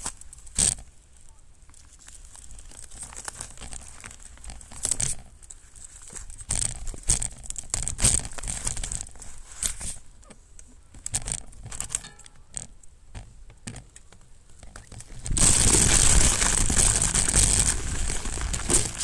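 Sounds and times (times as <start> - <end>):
bike tyres crunching snow: 1.7 - 7.2, 14.8 - 19.0.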